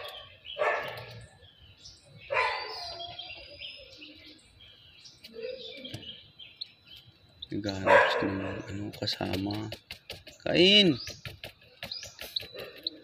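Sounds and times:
chick peeping: 0.0s - 13.0s.

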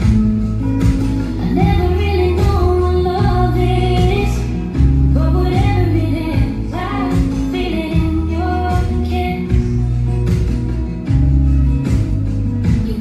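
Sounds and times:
bass notes: 0.0s - 13.0s
instrumental backing: 0.0s - 13.0s
woman singing: 1.3s - 10.0s, 12.6s - 13.0s.

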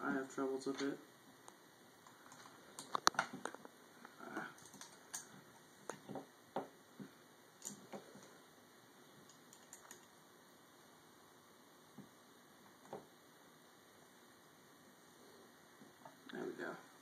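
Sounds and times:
small metal parts clicking: 4.6s - 5.3s, 9.3s - 10.1s.

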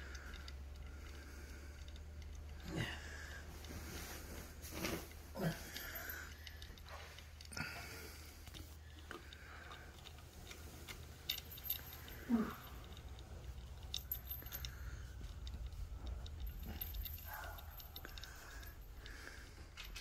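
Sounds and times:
pom-pom toy jingling and clicking: 10.8s - 19.1s.

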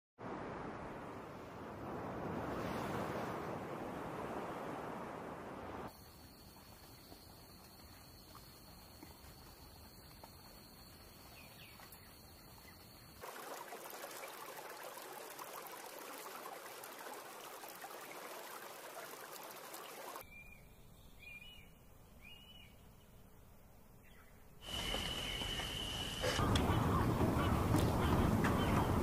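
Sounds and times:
water trickling and lapping: 0.2s - 20.2s, 24.6s - 29.0s
hiss with high whistle: 24.6s - 26.4s.

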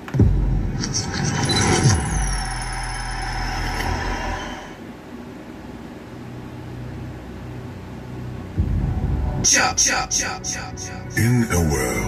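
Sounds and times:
low steady hum: 0.0s - 12.0s
deep booming hit: 8.6s - 9.5s.

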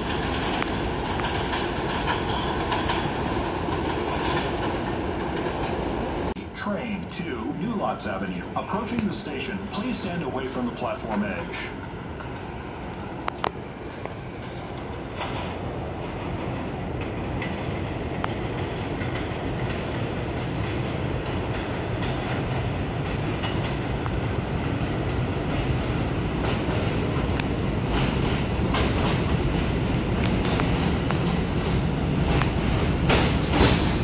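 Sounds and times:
wheels clacking over rail joints: 0.0s - 6.0s, 14.7s - 34.0s
subway train rumble: 0.0s - 34.0s.

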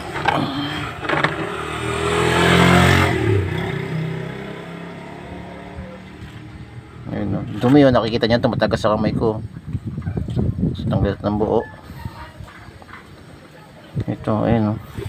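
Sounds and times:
vehicle engine passing by: 0.0s - 8.0s.

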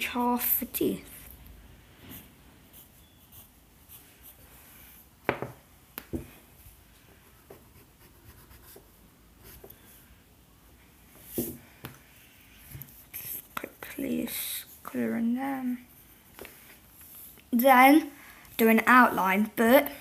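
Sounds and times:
pencil scratching on paper: 1.9s - 5.0s, 7.4s - 9.8s.

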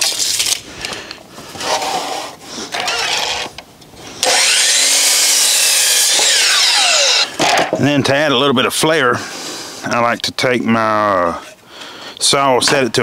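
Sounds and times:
saw cutting through board: 1.6s - 3.5s, 4.2s - 7.4s
miter saw motor whine: 2.7s - 3.6s, 4.2s - 7.4s.

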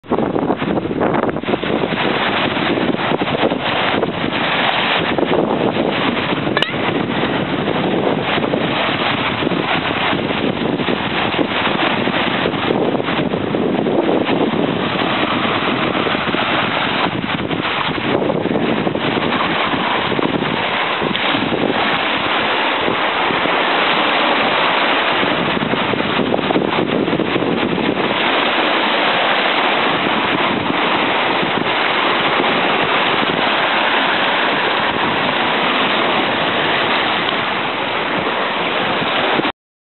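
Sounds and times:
surf breaking against rocks: 0.0s - 39.5s
wind buffeting microphone: 0.0s - 39.5s.

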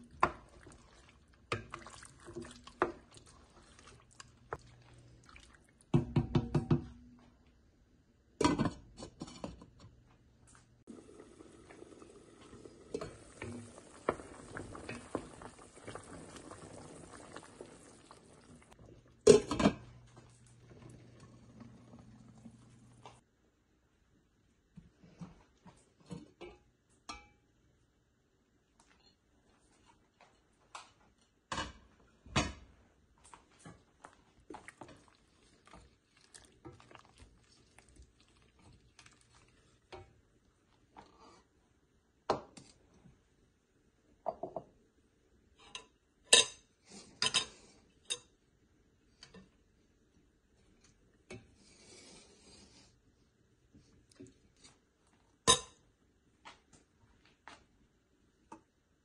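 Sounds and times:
wooden spoon stirring soup: 0.0s - 6.8s, 11.6s - 19.2s, 33.2s - 41.6s
pot and lid clinking: 55.5s - 55.8s.

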